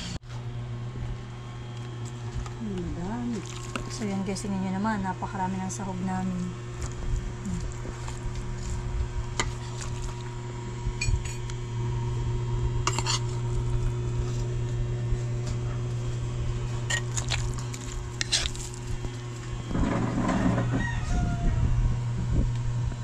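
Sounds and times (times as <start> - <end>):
steady low hum: 0.0 - 23.0
metal ladle scraping metal pan: 12.9 - 13.3.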